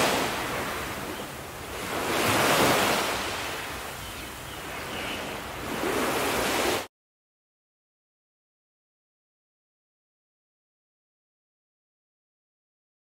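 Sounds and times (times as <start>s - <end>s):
surf washing onto beach: 0.0s - 4.0s, 5.5s - 6.9s.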